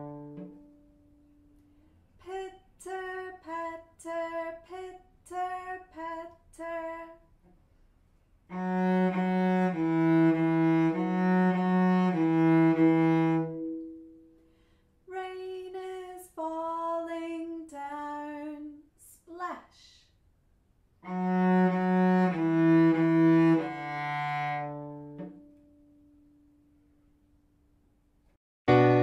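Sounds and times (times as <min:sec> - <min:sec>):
cello bowed phrase: 0:00.0 - 0:00.8, 0:08.5 - 0:14.1, 0:21.0 - 0:25.5, 0:28.7 - 0:29.0
woman singing clipped syllables: 0:02.2 - 0:07.3, 0:15.1 - 0:20.0.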